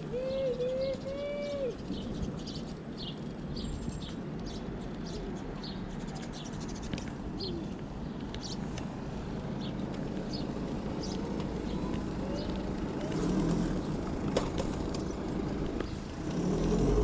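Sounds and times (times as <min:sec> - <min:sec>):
wavering coo-like tone: 0:00.0 - 0:01.8
small birds chirping: 0:00.0 - 0:17.0
wind and road noise rumble: 0:00.0 - 0:17.0.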